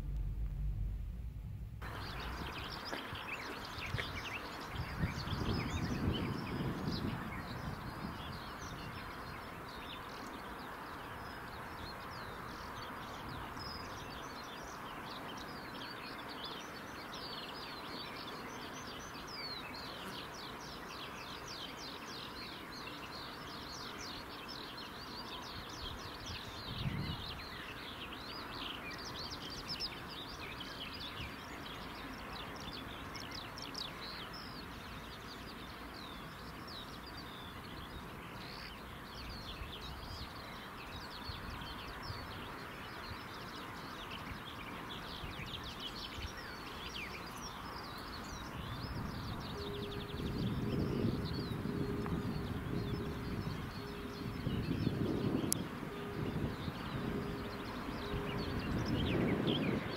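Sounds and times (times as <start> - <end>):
low thump: 0.0 - 3.0
steady background hiss: 0.0 - 5.8, 6.7 - 59.9
birds chirping and singing: 1.8 - 59.9.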